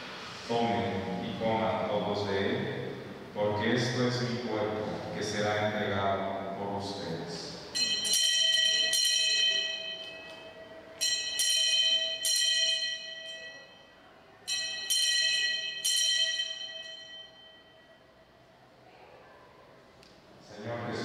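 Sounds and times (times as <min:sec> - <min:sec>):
altar bells ringing: 0:07.7 - 0:18.3.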